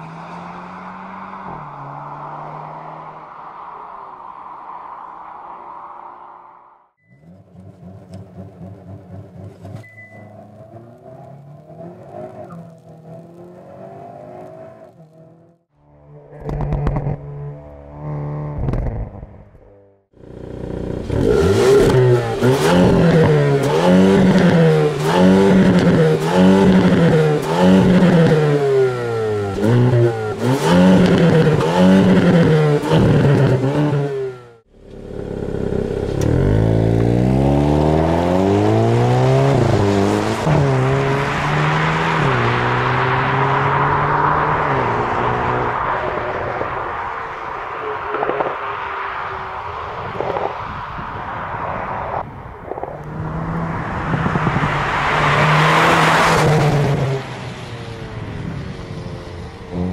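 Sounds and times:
car pulling away through upshifts: 0:07.2 - 0:15.6, 0:20.2 - 0:47.0
car engine revving: 0:07.2 - 0:50.7, 0:51.3 - 0:58.4
exhaust pops: 0:48.0 - 0:49.0.

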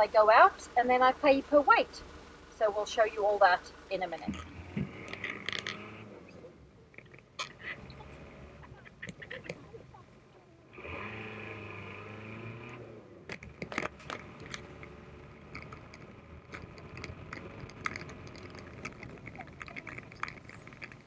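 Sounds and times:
truck engine pulling away: 0:00.0 - 0:21.0
tyres crunching on gravel: 0:00.8 - 0:21.0
truck bumping clicks and knocks: 0:04.2 - 0:06.0, 0:13.2 - 0:21.0.

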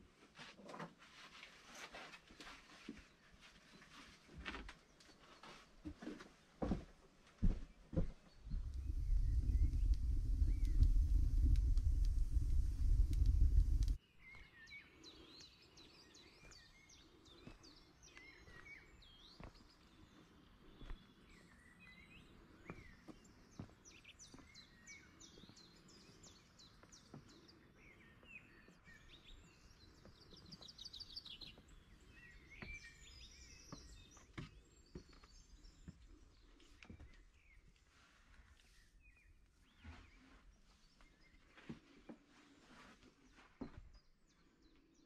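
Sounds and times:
small birds chirping: 0:07.4 - 0:45.0
low rumble: 0:08.4 - 0:14.0
faint clicks: 0:08.5 - 0:14.0.

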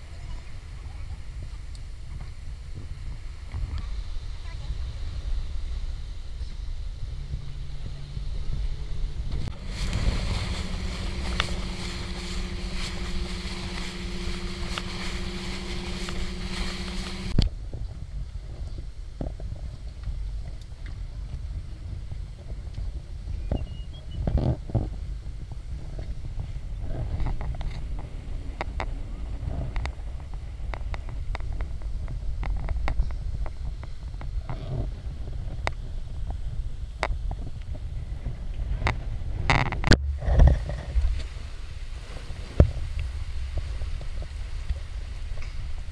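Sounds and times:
water rushing past: 0:00.0 - 0:17.4
wind on microphone: 0:00.0 - 0:45.9
boat motor running: 0:06.9 - 0:17.4.

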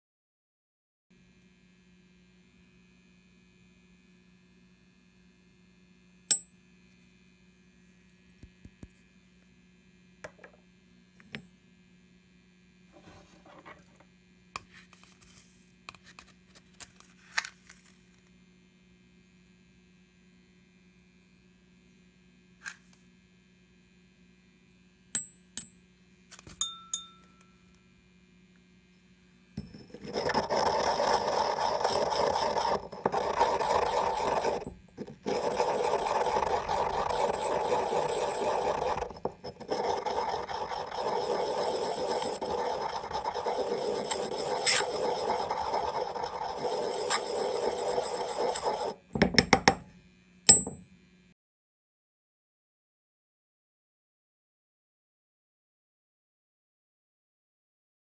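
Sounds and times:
steady low hum: 0:24.6 - 0:49.1.

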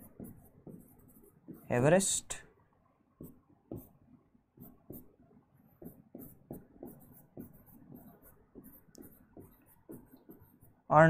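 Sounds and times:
pen scratching strokes: 0:00.0 - 0:01.8, 0:03.2 - 0:04.0, 0:04.6 - 0:10.9
pen tapping on display board: 0:03.2 - 0:04.0, 0:05.8 - 0:10.4.

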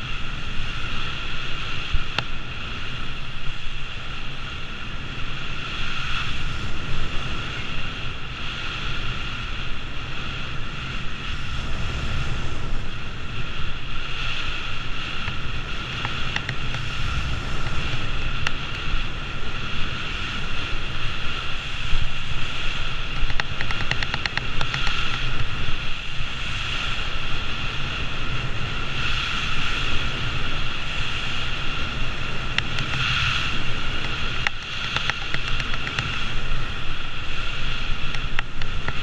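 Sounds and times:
wind buffeting microphone: 0:00.0 - 0:39.0
skis hissing over snow: 0:24.7 - 0:38.9.

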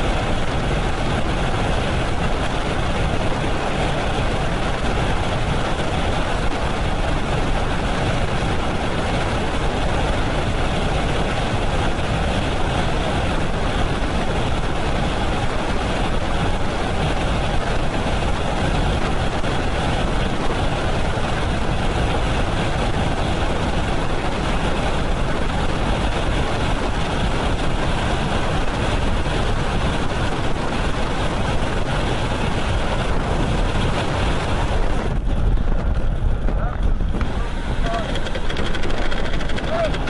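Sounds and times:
freefall wind buffeting microphone: 0:00.0 - 0:40.0.

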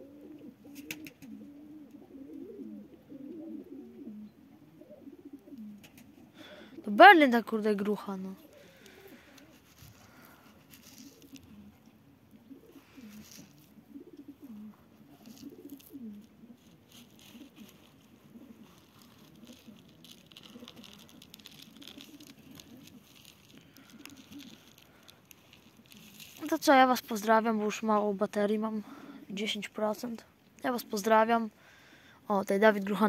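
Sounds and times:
pigeons cooing: 0:00.0 - 0:07.0, 0:08.4 - 0:26.6.

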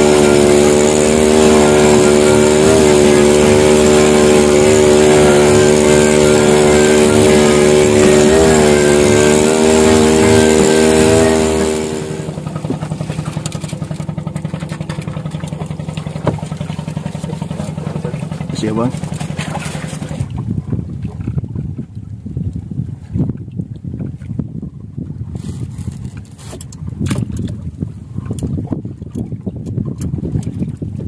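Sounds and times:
wind and spray hiss: 0:00.0 - 0:14.2
boat engine running: 0:00.0 - 0:31.0.

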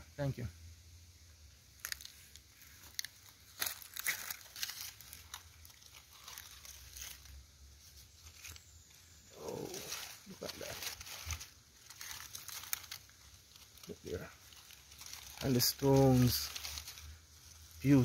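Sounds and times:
dry leaves crackling: 0:01.4 - 0:18.0.

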